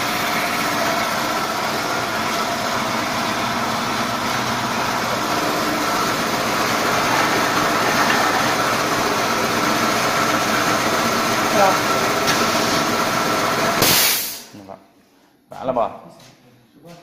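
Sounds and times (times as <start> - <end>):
machine drone: 0.0 - 13.8
air hiss: 13.8 - 14.5.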